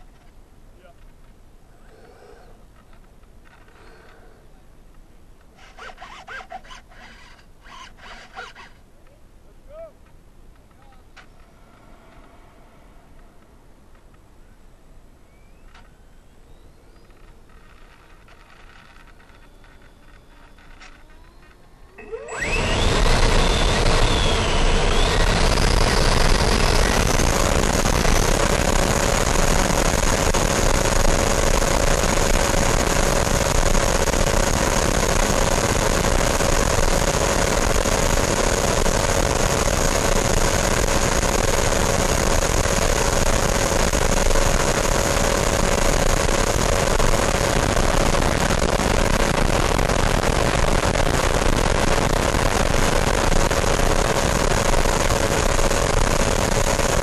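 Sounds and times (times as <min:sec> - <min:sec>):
electric ducted fan whine: 0:08.9 - 0:57.0
rush of air: 0:11.4 - 0:14.0.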